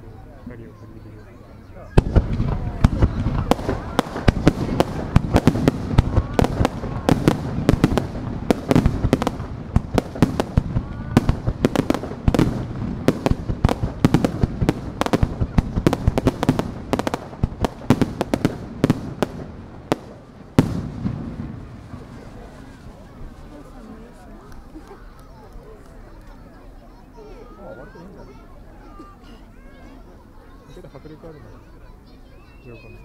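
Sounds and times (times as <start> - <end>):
fireworks bangs: 1.9 - 23.8.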